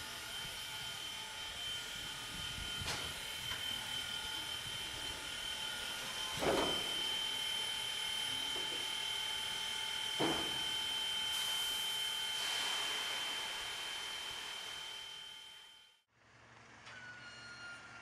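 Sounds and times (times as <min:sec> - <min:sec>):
steam locomotive high whine: 0:00.0 - 0:16.0
steam bursts: 0:10.4 - 0:15.2.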